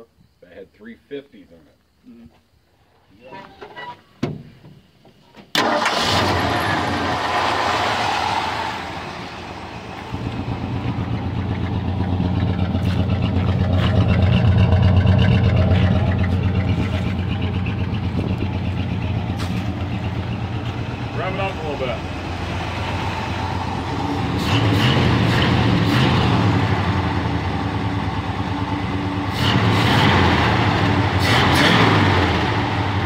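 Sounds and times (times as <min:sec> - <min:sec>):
engine starting and idling: 0:05.5 - 0:07.8, 0:10.1 - 0:22.4.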